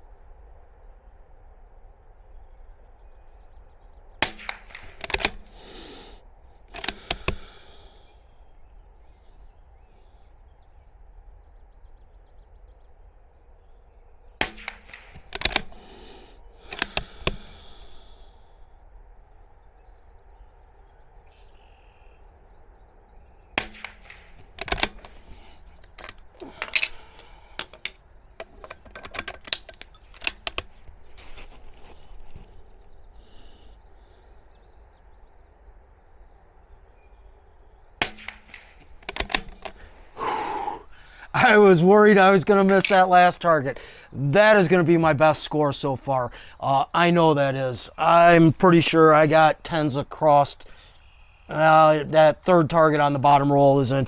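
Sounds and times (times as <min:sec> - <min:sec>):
rifle bolt clicks: 0:04.2 - 0:06.0, 0:06.7 - 0:07.6, 0:14.4 - 0:18.2, 0:23.6 - 0:30.9, 0:38.0 - 0:39.9
suppressed rifle shots: 0:04.2 - 0:07.7, 0:14.3 - 0:18.1, 0:23.5 - 0:27.8, 0:38.0 - 0:39.8
small metallic clicks: 0:04.2 - 0:07.8, 0:14.4 - 0:18.4, 0:23.6 - 0:33.7, 0:38.0 - 0:40.7.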